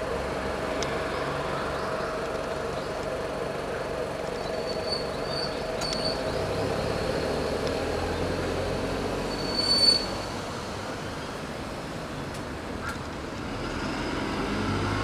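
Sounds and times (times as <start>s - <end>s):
traffic rumble: 0.0s - 15.0s
short high squeal: 4.6s - 6.3s, 9.2s - 10.4s.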